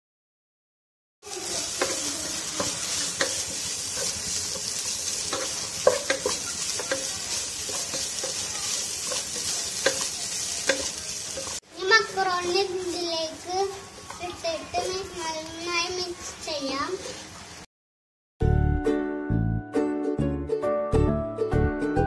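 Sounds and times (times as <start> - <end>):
food sizzling in a pot: 1.2 - 17.7
spatula knocking against a pan: 5.3 - 8.4, 9.0 - 11.5.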